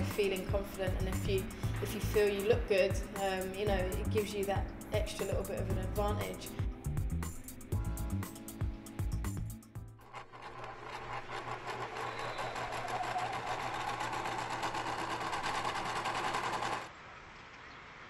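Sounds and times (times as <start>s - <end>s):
sewing machine stitching: 10.0s - 16.9s.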